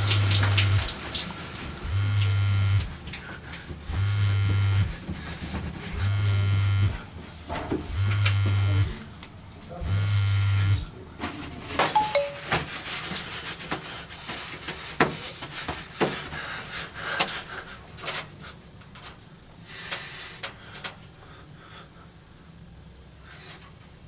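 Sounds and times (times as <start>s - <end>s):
short beeps: 12.0s - 12.5s
knocks and clicks of small objects: 12.0s - 12.6s.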